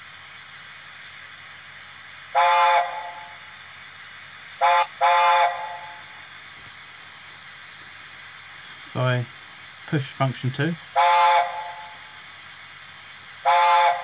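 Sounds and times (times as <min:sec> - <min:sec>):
steady hiss: 0:00.0 - 0:14.0
model steam whistle blasts: 0:02.3 - 0:03.4, 0:04.6 - 0:06.1, 0:10.9 - 0:12.1, 0:13.4 - 0:14.0.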